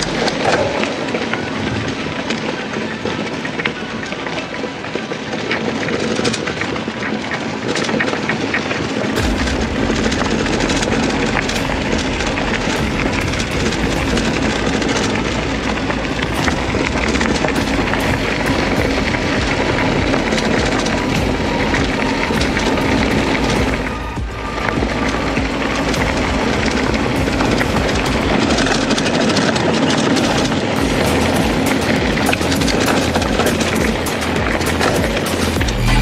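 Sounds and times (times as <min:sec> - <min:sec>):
bicycle tyre and air noise: 0:00.0 - 0:36.0
bike rattles and knocks: 0:00.0 - 0:36.0
deep low rumble: 0:09.2 - 0:36.0.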